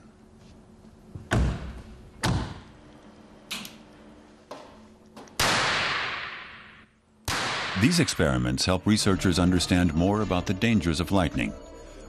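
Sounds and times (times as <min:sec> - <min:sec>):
faint steady hum: 0:00.0 - 0:05.5
sharp electrical cracks: 0:05.4 - 0:08.1.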